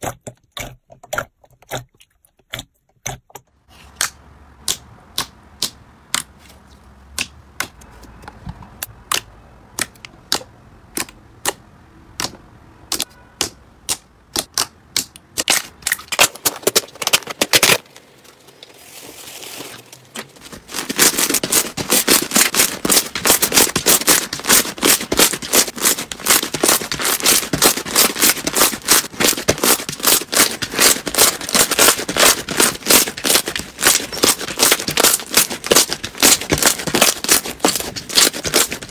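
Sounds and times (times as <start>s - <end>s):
sticky slime swishing: 12.2s - 38.9s.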